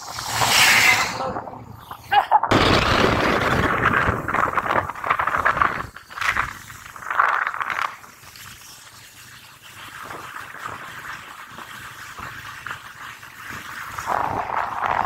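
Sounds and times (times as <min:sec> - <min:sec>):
wind rushing over microphone: 0:00.0 - 0:07.7, 0:14.0 - 0:15.0.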